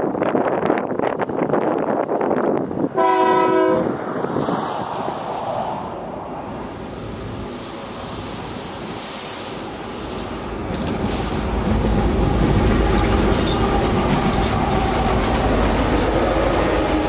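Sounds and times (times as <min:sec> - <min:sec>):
freight train rumbling: 0:00.0 - 0:17.0
locomotive air horn blast: 0:03.0 - 0:03.9.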